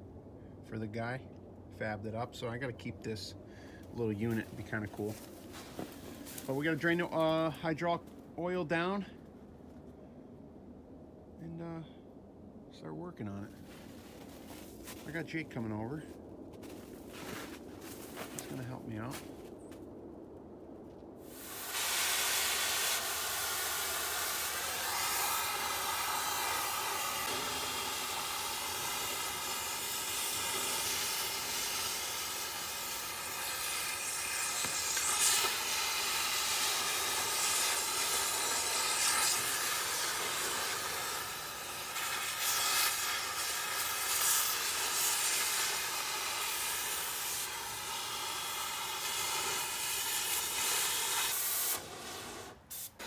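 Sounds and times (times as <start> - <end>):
crackles: 13.4 - 53.0
cutting torch hissing: 21.2 - 53.0.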